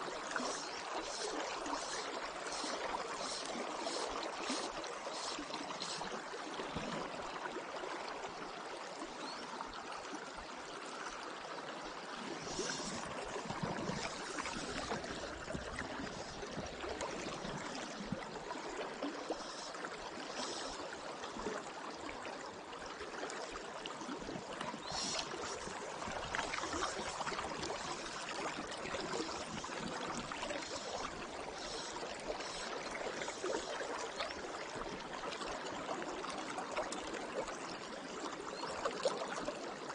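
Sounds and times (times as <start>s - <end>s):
river water flowing: 0.0s - 39.9s.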